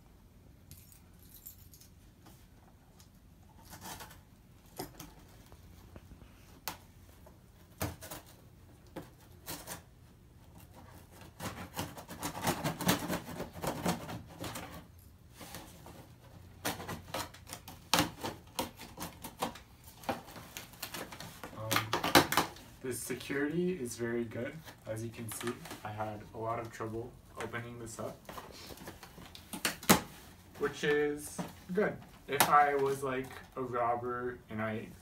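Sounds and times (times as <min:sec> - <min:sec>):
tape tearing and rustling: 0:10.5 - 0:23.6, 0:27.4 - 0:33.4.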